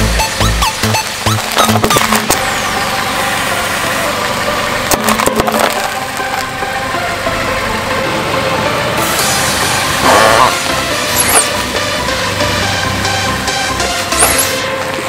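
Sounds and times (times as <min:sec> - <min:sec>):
car engine idling: 0:00.0 - 0:15.0
lollipop crunching under tyre: 0:04.9 - 0:06.5.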